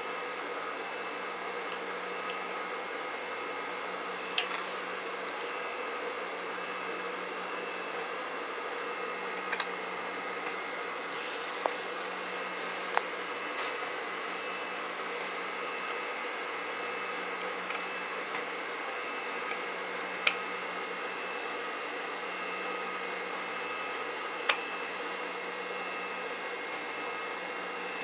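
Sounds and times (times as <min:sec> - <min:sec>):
faint hum: 0:00.0 - 0:28.0.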